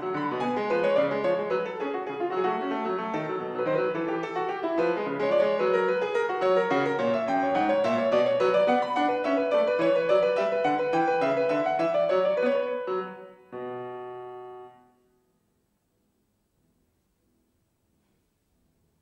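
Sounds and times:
solo classical piano piece: 0.0s - 19.0s.

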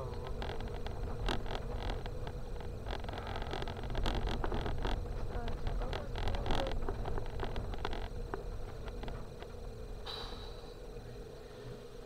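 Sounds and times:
stones and suspension knocking: 0.0s - 9.6s
car engine and tyre rumble: 0.0s - 12.0s.

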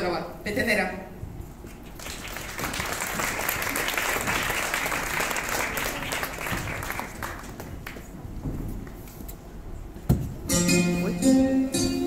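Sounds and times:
audience applauding: 2.0s - 8.0s.

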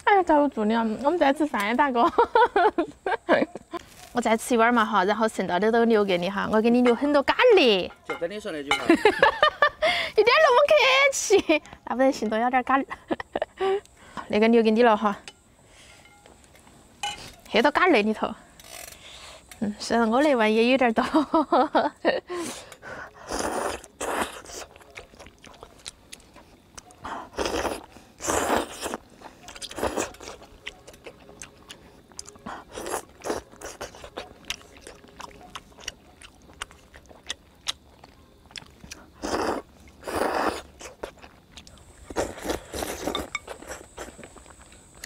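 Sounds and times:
chewing: 23.0s - 45.0s
person slurping noodles: 23.2s - 24.7s, 27.2s - 29.0s, 39.2s - 40.7s.

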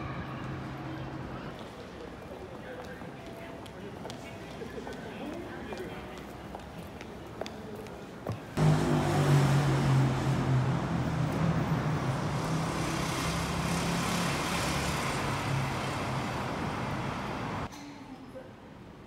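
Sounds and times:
road noise: 0.0s - 17.7s
vehicle engine hum: 8.6s - 17.7s.

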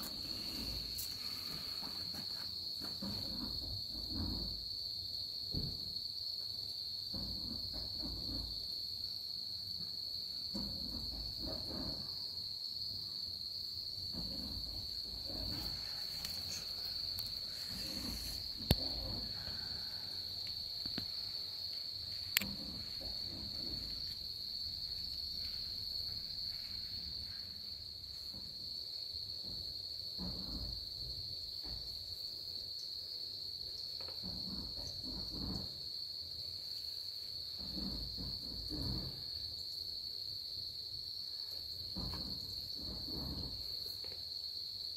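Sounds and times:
faint rustling: 0.0s - 3.5s, 14.2s - 28.2s
insects chirring: 0.0s - 44.9s.

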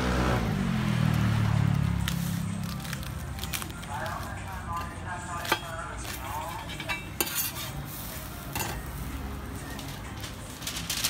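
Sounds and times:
metal spatula scraping griddle: 4.8s - 9.1s.

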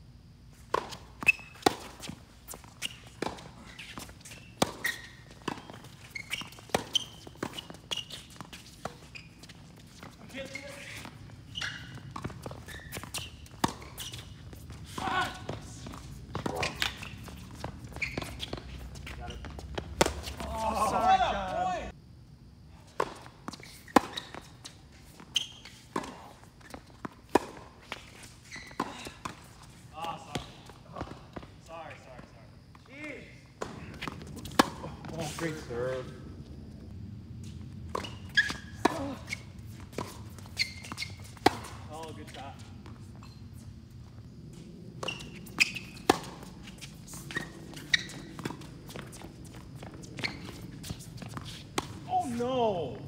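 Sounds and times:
tennis ball bounces: 0.6s - 21.7s, 23.0s - 28.0s, 33.6s - 35.6s, 37.9s - 43.0s, 45.0s - 49.2s
shoe squeaks: 0.6s - 21.9s, 22.9s - 31.7s, 32.3s - 36.2s, 37.4s - 43.9s, 44.5s - 53.0s
players' footsteps: 0.6s - 22.0s, 22.8s - 53.0s.

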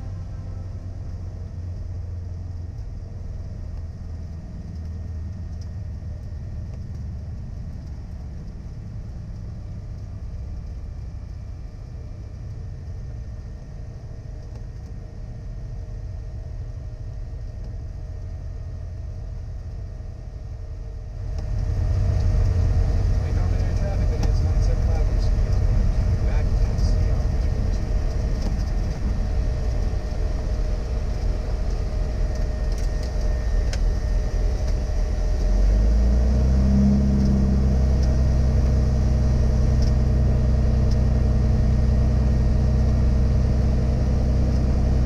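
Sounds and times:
propeller airplane engine droning: 0.0s - 45.0s.

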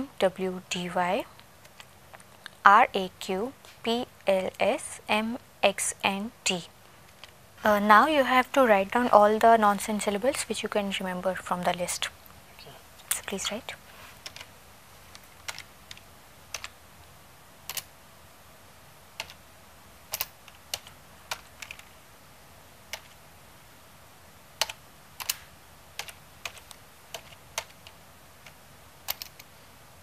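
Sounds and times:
slow typing on keyboard: 1.3s - 2.5s, 14.2s - 16.8s, 17.6s - 17.9s, 19.2s - 19.4s, 20.1s - 22.0s, 22.9s - 23.2s, 24.6s - 29.6s.

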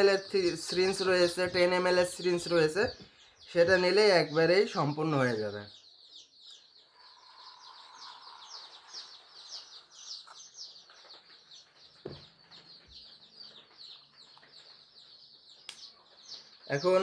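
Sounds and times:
chicks peeping: 0.0s - 17.0s
soft knock: 12.0s - 12.3s.

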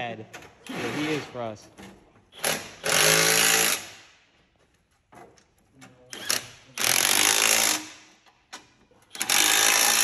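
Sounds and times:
impact wrench bursts: 2.3s - 4.2s, 6.1s - 8.2s, 9.1s - 10.0s.

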